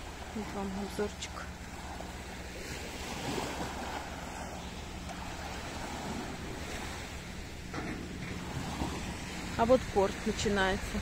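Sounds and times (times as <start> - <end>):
waves lapping on sandy shore: 0.0 - 11.0.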